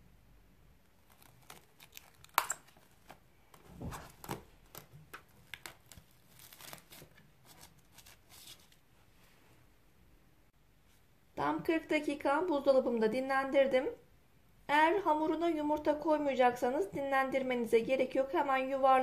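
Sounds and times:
cling film crackling and snapping: 0.8 - 8.8.

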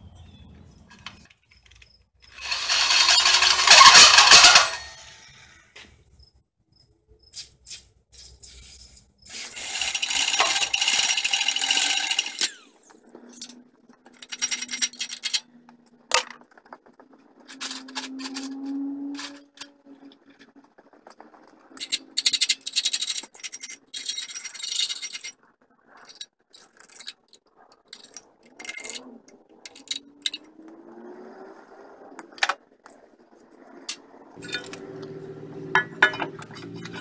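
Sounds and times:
drill cutting steel: 2.3 - 5.2, 9.5 - 12.6.

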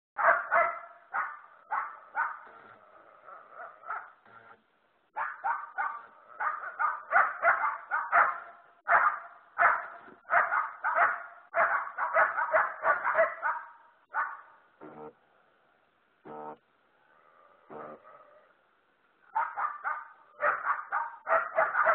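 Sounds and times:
dogs barking: 0.2 - 4.2, 5.1 - 14.6, 17.1 - 18.6, 19.2 - 21.9.

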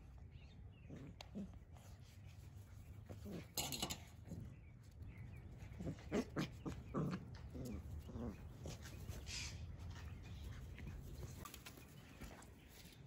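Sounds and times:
puppies growling and yipping: 5.4 - 9.2.

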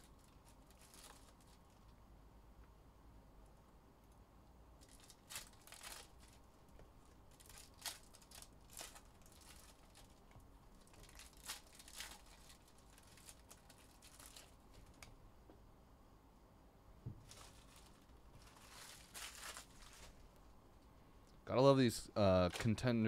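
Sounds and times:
foil wrappers crinkling and tearing: 0.0 - 1.9, 4.8 - 6.5, 7.3 - 15.1, 17.2 - 20.3.

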